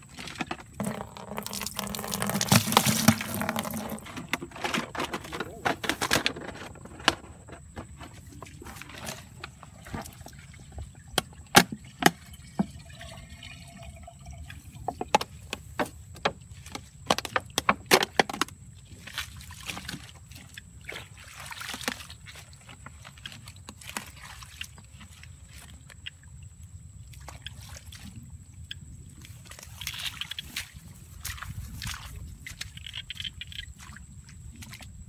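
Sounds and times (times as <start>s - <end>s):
plants pulled up by the roots: 0.0s - 11.2s
water splashes and drips: 0.1s - 6.2s, 7.9s - 35.0s
hands sloshing in water: 19.0s - 25.8s.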